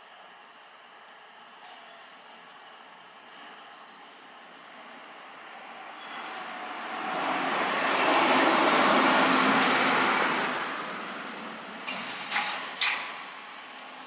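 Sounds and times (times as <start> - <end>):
passing vehicle road noise: 3.2 - 14.0.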